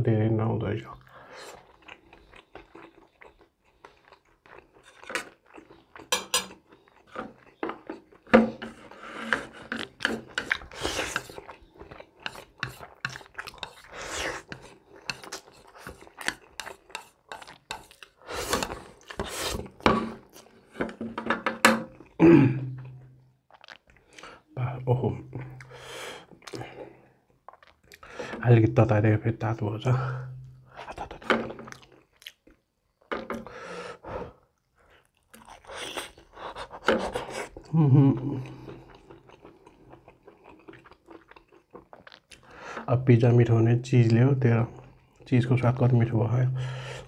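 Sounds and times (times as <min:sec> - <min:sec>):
person chewing and slurping noodles: 0:01.1 - 0:21.0, 0:21.9 - 0:24.6, 0:25.5 - 0:28.2, 0:30.6 - 0:42.7.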